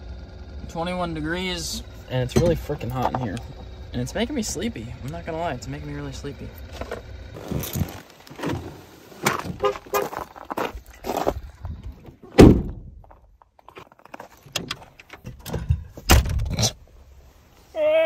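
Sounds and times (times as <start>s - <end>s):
car door slamming: 12.3s - 12.9s, 15.4s - 16.6s.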